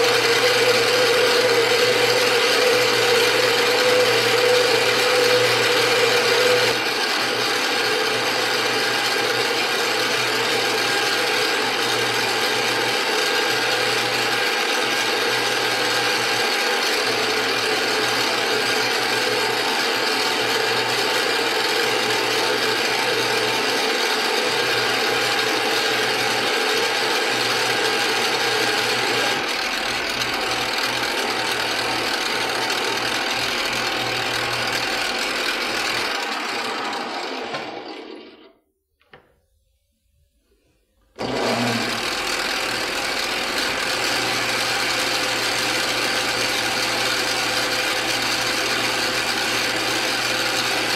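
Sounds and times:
metal lathe gears whirring: 0:00.0 - 0:38.5.

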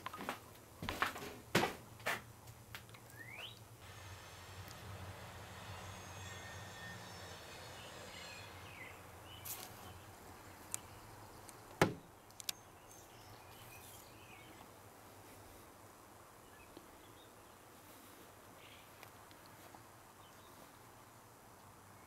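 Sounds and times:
low hum: 0:03.8 - 0:11.5.

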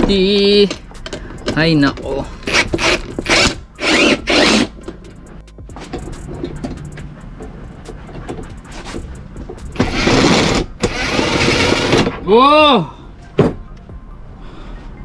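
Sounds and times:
cordless drill rasping bursts: 0:02.5 - 0:04.7, 0:09.8 - 0:12.0.

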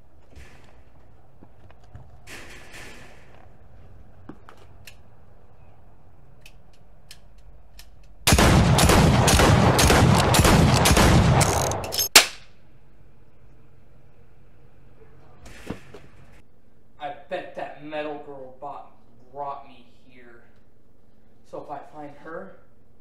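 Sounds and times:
faint clicks: 0:06.4 - 0:08.2
automatic gunfire: 0:08.2 - 0:12.4
single gunshot crack: 0:08.3 - 0:11.4.

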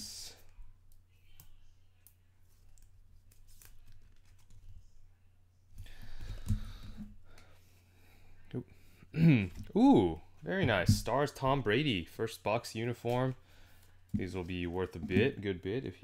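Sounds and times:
cards rustling: 0:01.2 - 0:05.0.

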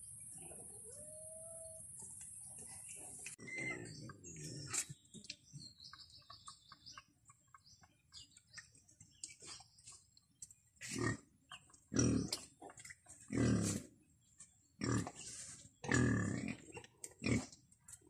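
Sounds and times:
pig grunting: 0:10.8 - 0:11.3, 0:11.9 - 0:14.0, 0:14.8 - 0:15.2, 0:15.8 - 0:17.6.

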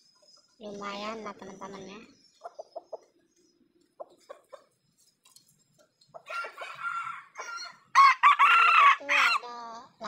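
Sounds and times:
rooster clucking: 0:02.4 - 0:03.2, 0:03.9 - 0:04.8
rooster crowing: 0:06.2 - 0:09.4.

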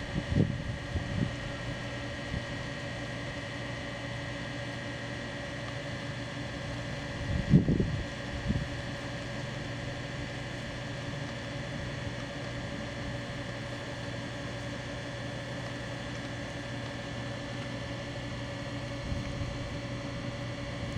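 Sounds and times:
motor humming: 0:00.0 - 0:20.9.

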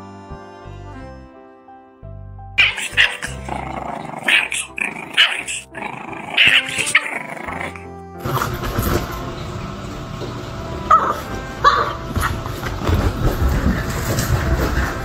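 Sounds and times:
puppy yapping: 0:02.6 - 0:07.8, 0:10.9 - 0:12.4
puppy growling: 0:02.6 - 0:09.0, 0:10.9 - 0:15.0.

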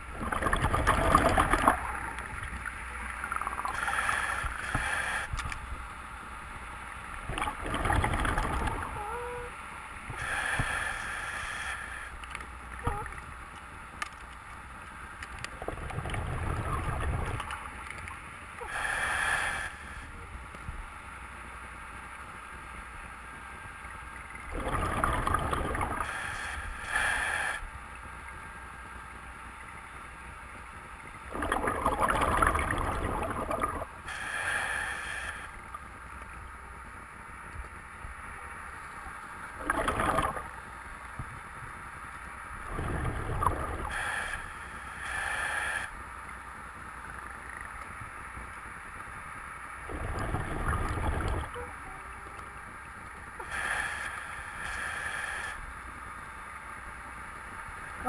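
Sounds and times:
bubbling exhaust bursts: 0:00.0 - 0:02.4, 0:07.2 - 0:09.0, 0:15.6 - 0:17.5, 0:24.5 - 0:27.6, 0:31.3 - 0:35.5, 0:39.5 - 0:40.6, 0:42.6 - 0:45.9, 0:49.8 - 0:51.7
diver inhaling through regulator: 0:03.6 - 0:05.4, 0:10.1 - 0:12.2, 0:18.6 - 0:20.2, 0:24.6 - 0:27.7, 0:34.0 - 0:35.6, 0:42.7 - 0:46.0, 0:53.4 - 0:55.7.

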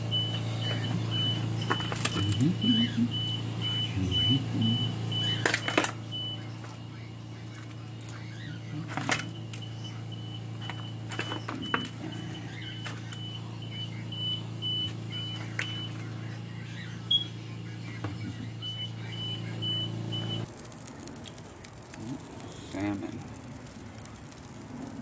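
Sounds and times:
low electrical hum: 0:00.0 - 0:25.0
short high electronic beeps: 0:17.0 - 0:17.4.

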